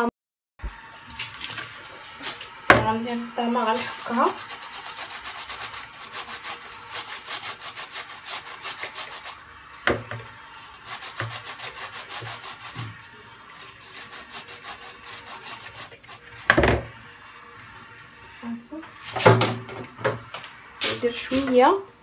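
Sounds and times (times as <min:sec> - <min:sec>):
grater rasping: 0:03.6 - 0:09.4, 0:10.6 - 0:13.0, 0:13.6 - 0:16.6
grater tapping against bowl: 0:11.0 - 0:12.8.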